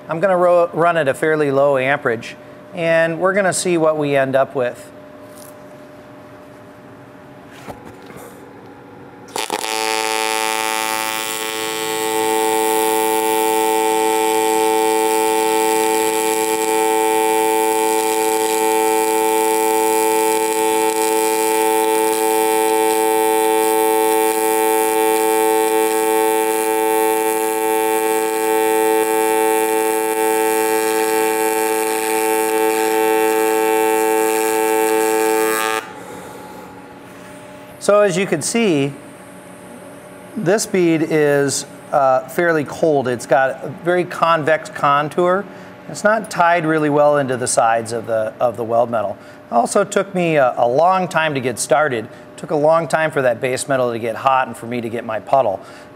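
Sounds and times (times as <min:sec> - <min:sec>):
welding arc buzzing: 0:09.2 - 0:41.7.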